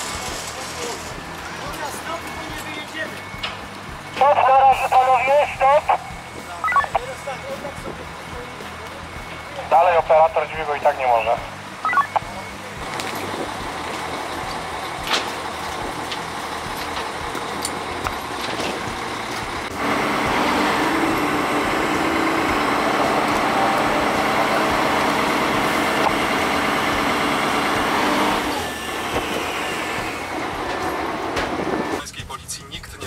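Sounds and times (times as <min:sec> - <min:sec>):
heavy machinery droning: 0:00.0 - 0:32.1.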